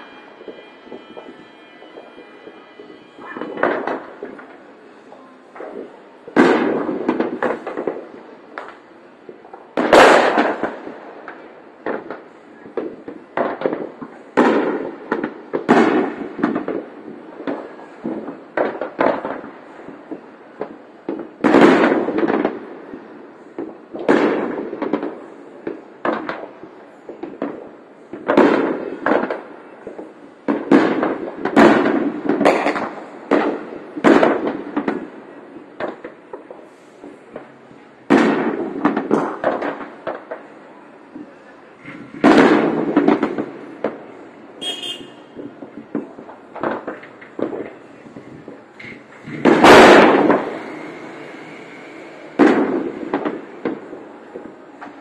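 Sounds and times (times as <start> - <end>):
fireworks bursting with echo: 0.0 - 55.0.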